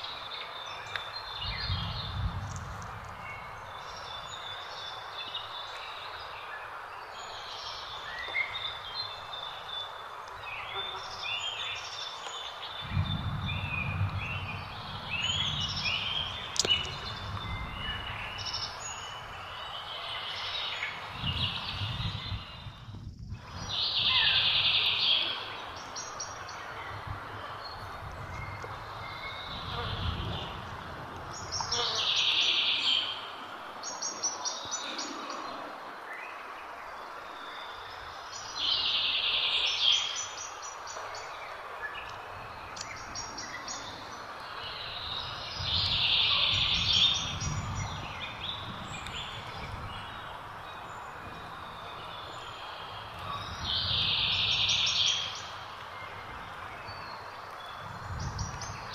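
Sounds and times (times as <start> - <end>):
outdoor background noise: 0.0 - 58.9.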